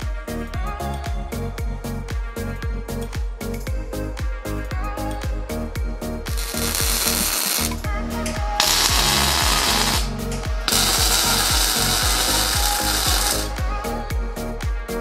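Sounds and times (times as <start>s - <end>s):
background music with steady beat: 0.0s - 15.0s
welder arc crackling and hissing: 6.3s - 13.6s.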